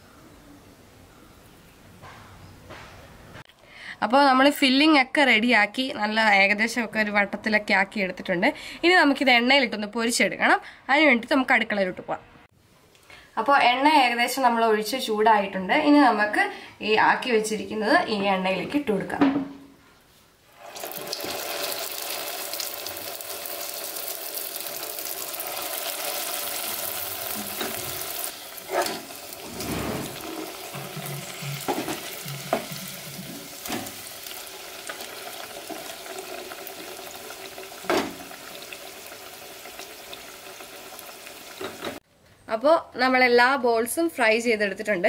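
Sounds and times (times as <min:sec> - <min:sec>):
dough deep-frying in oil: 0:20.5 - 0:42.0.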